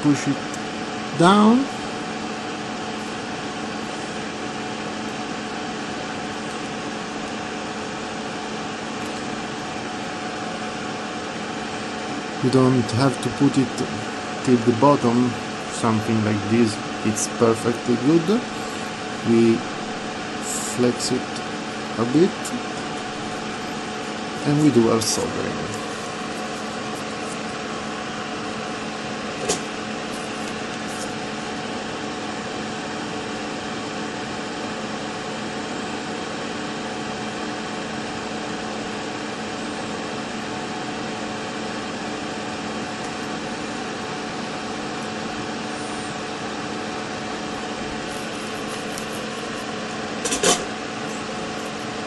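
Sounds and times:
steady mechanical hum: 0:00.0 - 0:52.0.

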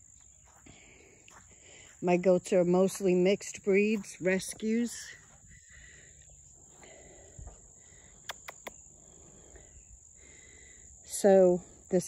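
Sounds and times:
insects chirring: 0:00.0 - 0:12.0
quick clicks: 0:08.2 - 0:08.8.

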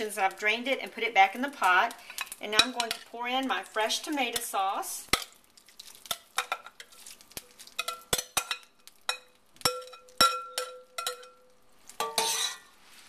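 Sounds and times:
spoon clinking on bowl and pot: 0:02.2 - 0:03.0, 0:07.7 - 0:12.7
spoon scraping through tomatoes: 0:12.0 - 0:13.0.

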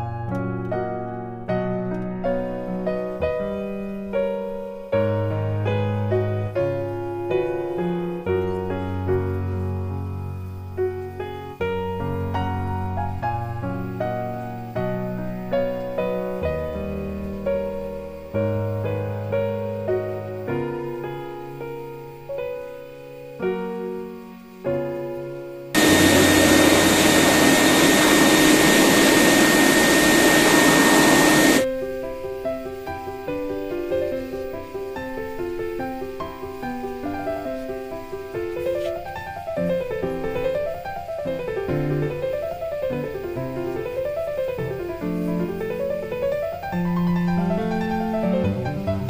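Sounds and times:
piano music: 0:00.0 - 0:49.0
pet dryer blowing with whine: 0:25.8 - 0:31.7.

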